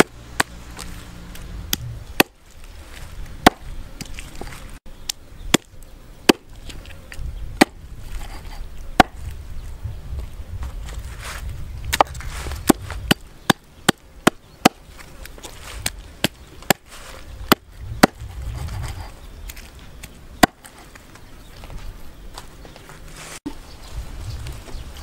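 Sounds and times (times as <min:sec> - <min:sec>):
knife chopping on wooden block: 0:03.4 - 0:03.6, 0:07.6 - 0:09.2.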